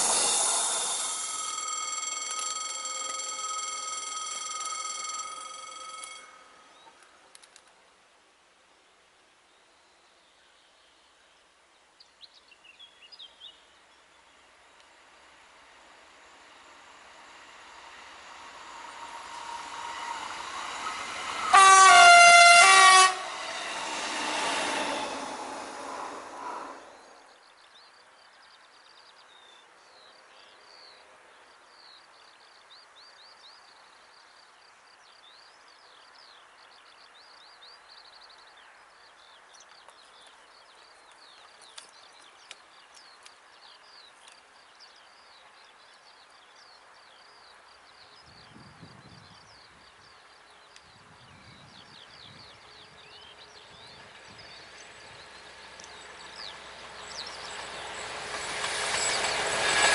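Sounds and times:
distant train rumble: 0.0 - 7.0, 14.4 - 27.4, 52.3 - 59.9.

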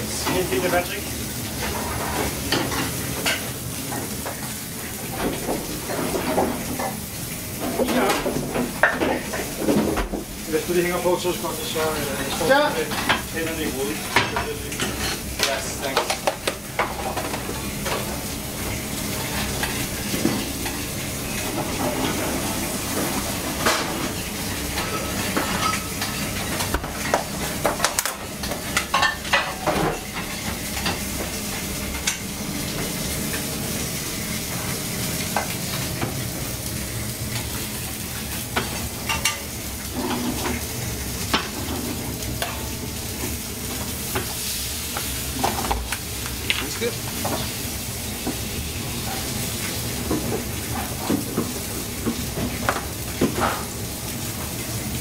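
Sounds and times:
food sizzling on range: 0.0 - 55.0
dishes and pans clattering: 1.6 - 7.0, 7.6 - 10.3, 12.2 - 13.3, 14.0 - 18.2, 21.4 - 33.5, 38.2 - 42.8, 45.4 - 45.9, 50.0 - 53.7.

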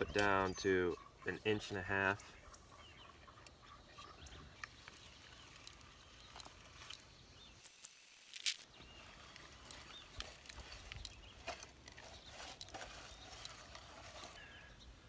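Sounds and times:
garden seeder clicking and rattling: 4.6 - 14.4.

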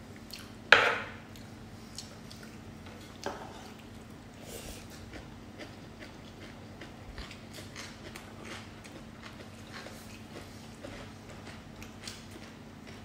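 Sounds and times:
steady low hum: 0.0 - 13.0
chewing and lip smacks: 1.3 - 2.6.

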